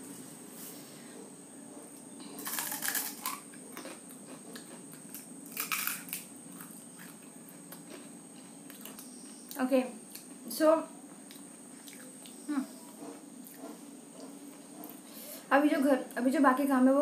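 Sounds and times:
steady low hum: 0.0 - 17.0
crisp shell crunching being eaten: 2.4 - 8.1.

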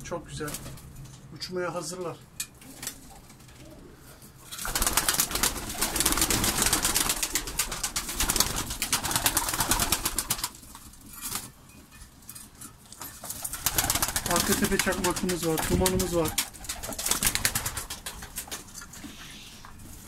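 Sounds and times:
pigeons cooing: 2.6 - 10.2.

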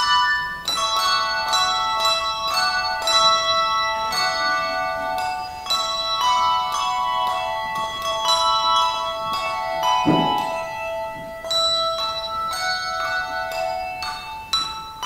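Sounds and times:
handbell choir playing: 0.0 - 15.0
low thud: 10.1 - 10.7.

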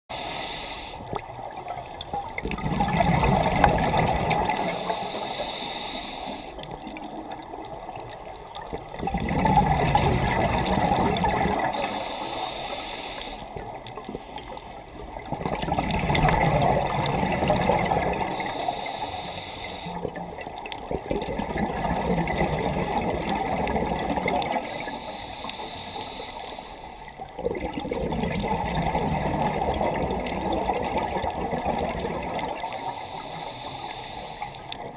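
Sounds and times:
scuba regulator inhale: 0.1 - 1.2, 4.5 - 6.8, 11.6 - 15.0, 18.1 - 20.2, 24.4 - 27.2, 32.5 - 34.9
scuba regulator exhaled bubbles: 1.0 - 5.6, 6.2 - 12.2, 15.1 - 19.2, 19.8 - 25.1, 27.3 - 33.1.

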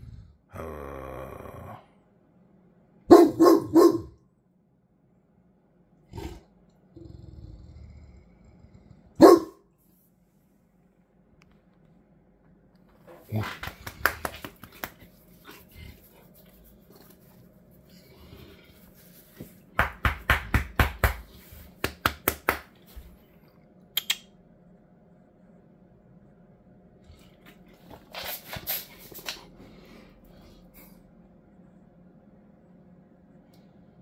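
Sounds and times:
dog barking sharply: 3.1 - 4.2, 9.2 - 9.6.

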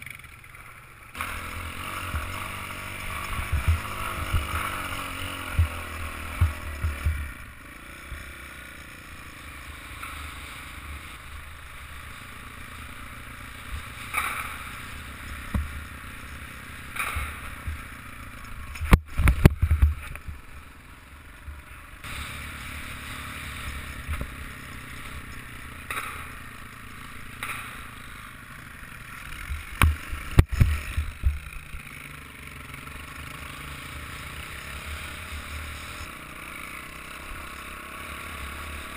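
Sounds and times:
dirt bike engine running: 0.0 - 38.9
wind rumble on microphone: 3.2 - 4.6.

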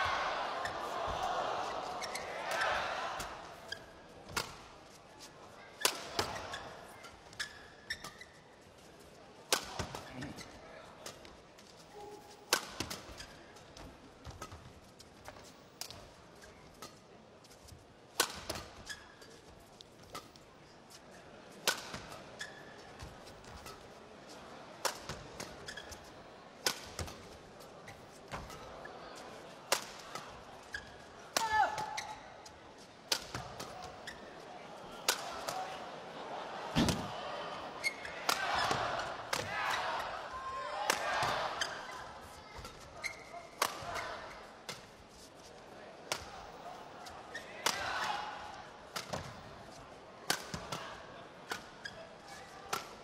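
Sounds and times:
shoe squeaks: 2.0 - 2.4, 6.4 - 8.6, 18.8 - 19.4, 22.4 - 22.9, 25.6 - 26.1, 30.7 - 31.0, 31.9 - 32.4, 33.9 - 34.3, 42.6 - 43.5
rackets hitting shuttlecock: 9.5 - 10.1, 12.5 - 13.2, 18.2 - 18.7, 26.6 - 27.3, 29.7 - 30.4, 31.3 - 32.2, 33.1 - 34.0, 35.0 - 35.7, 37.8 - 39.8, 42.6 - 44.1, 47.6 - 48.2, 48.9 - 49.4, 50.3 - 50.9
badminton racket smacking shuttlecock: 33.1 - 34.2.

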